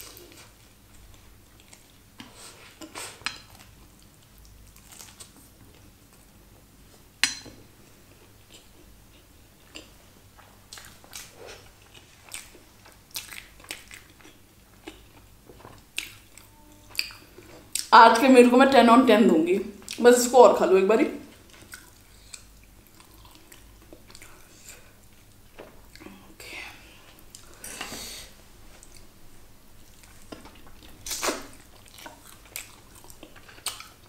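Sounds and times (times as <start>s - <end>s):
chewing crunchy food: 0.0s - 6.2s, 8.1s - 17.9s, 21.4s - 26.1s, 29.8s - 34.0s.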